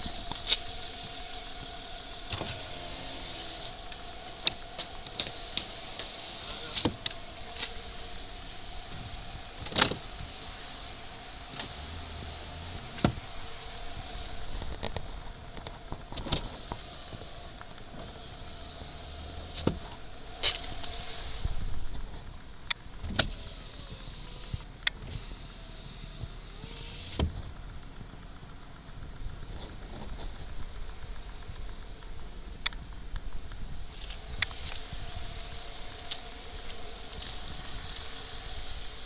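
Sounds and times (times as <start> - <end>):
car window motor whining: 0.0 - 32.6, 33.3 - 39.0
window glass stopping: 0.4 - 14.9.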